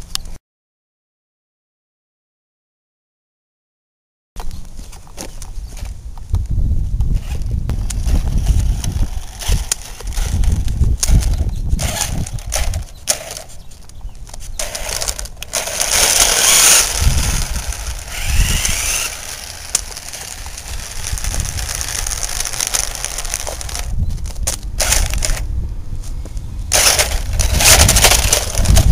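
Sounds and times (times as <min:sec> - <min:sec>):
footsteps crunching on asphalt: 0:04.4 - 0:10.9.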